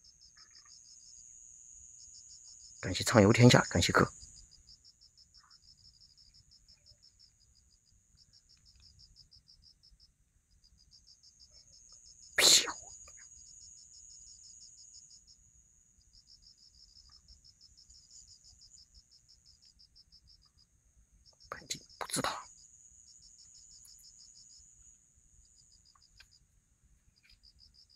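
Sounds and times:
crickets chirping: 0.0s - 27.9s
high insect buzz: 10.8s - 26.4s.

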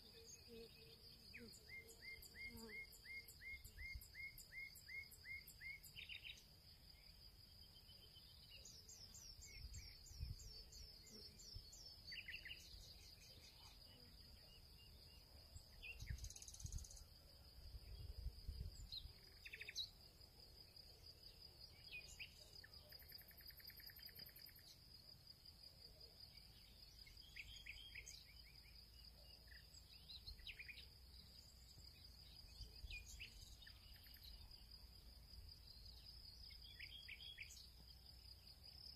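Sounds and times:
high-pitched insect trill: 21.9s - 24.8s.

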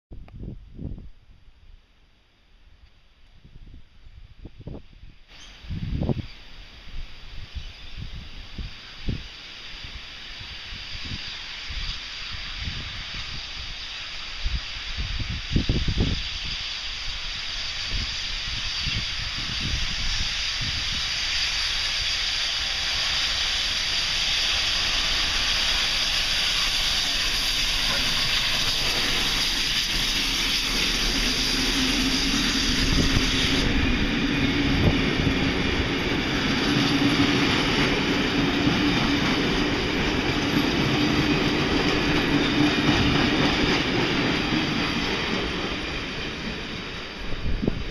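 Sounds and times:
steam hissing: 5.3s - 47.9s
train wheels clacking on rails: 11.0s - 47.9s.

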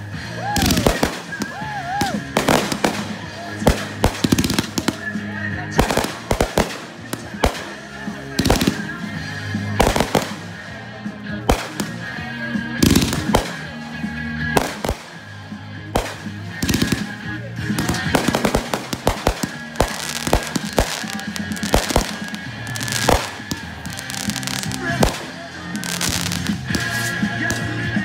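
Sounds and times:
music: 0.0s - 28.0s
crackling firework bangs: 0.5s - 10.7s, 11.4s - 12.1s, 12.8s - 13.8s, 14.5s - 15.2s, 15.9s - 27.9s
firework shells bursting: 0.6s - 5.2s, 5.8s - 7.8s, 16.0s - 27.7s.

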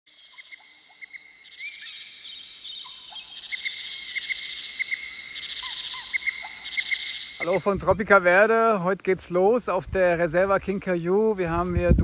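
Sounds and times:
short chirping calls: 0.1s - 7.8s
high-pitched insect drone: 0.3s - 7.7s.

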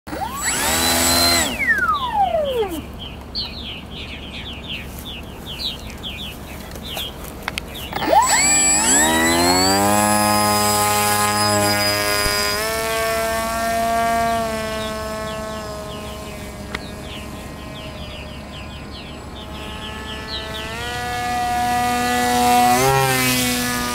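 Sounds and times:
electric motor and propeller whine: 0.1s - 23.9s.

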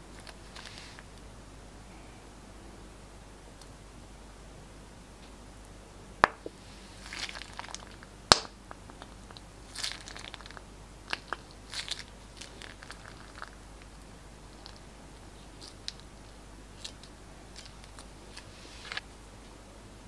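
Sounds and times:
plastic bag crinkling: 7.0s - 8.1s, 8.8s - 13.9s.

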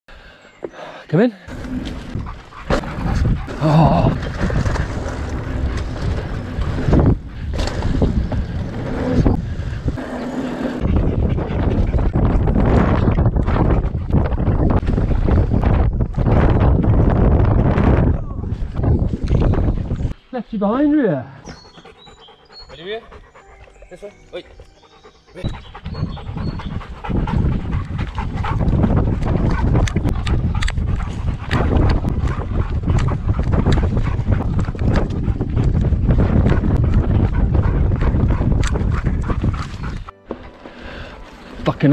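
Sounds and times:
tyre and trail rumble: 1.5s - 20.2s, 25.3s - 41.9s
wind buffeting microphone: 1.5s - 20.2s, 24.5s - 41.9s
paws thudding on dirt: 1.8s - 8.8s, 25.4s - 41.4s
dog panting: 2.1s - 3.6s, 10.7s - 12.3s, 21.5s - 40.2s.

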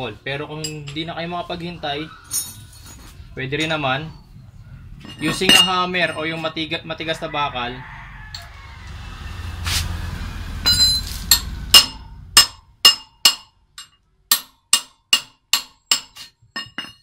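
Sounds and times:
hammer striking steel wrench: 10.6s - 17.0s.

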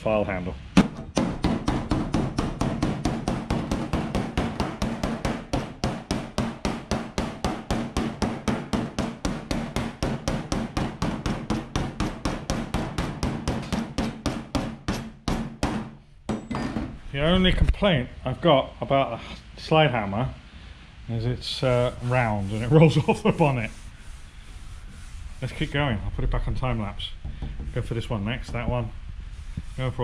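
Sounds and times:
file striking steel panel: 0.8s - 17.0s.

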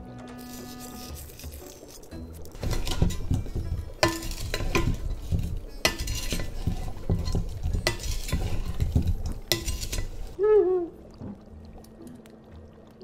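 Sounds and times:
corn pieces knocking in pot: 0.5s - 10.4s
spatula clacking against pot: 2.6s - 10.4s.

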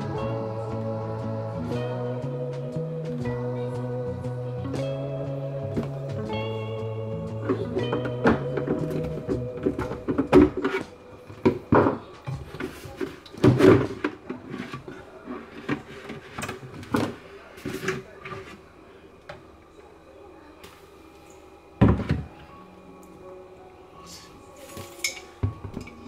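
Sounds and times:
plastic bucket thud: 7.5s - 14.9s.

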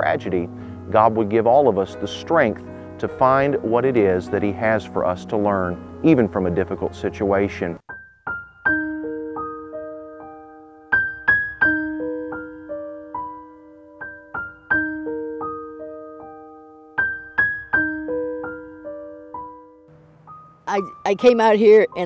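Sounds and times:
slow gentle solo piano: 7.8s - 20.5s.

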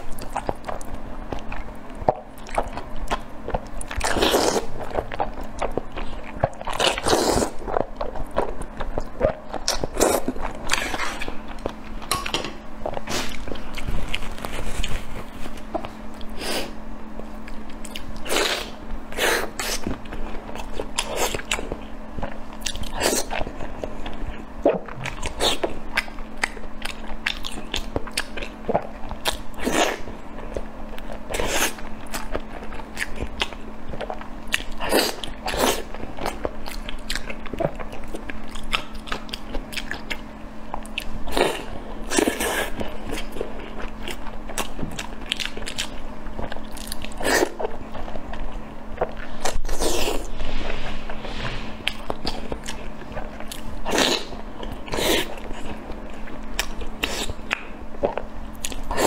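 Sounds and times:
wet chewing: 17.4s - 50.3s.

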